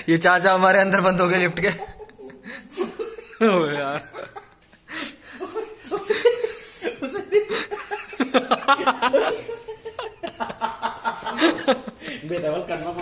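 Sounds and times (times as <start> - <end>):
people laughing: 1.6 - 13.0
people talking: 11.1 - 13.0.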